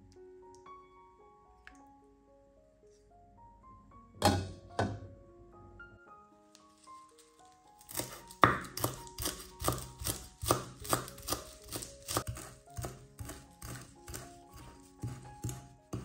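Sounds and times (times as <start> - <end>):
soft background music: 0.0 - 16.0
knife chopping on cutting board: 7.8 - 16.0.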